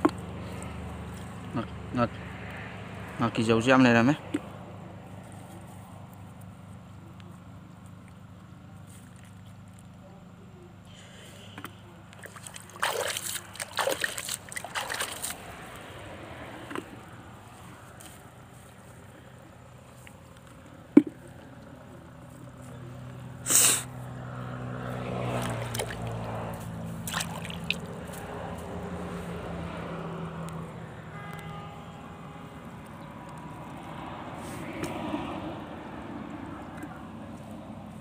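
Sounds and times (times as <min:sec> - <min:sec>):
fish splashing in a bucket: 0:12.1 - 0:17.0, 0:24.7 - 0:28.5.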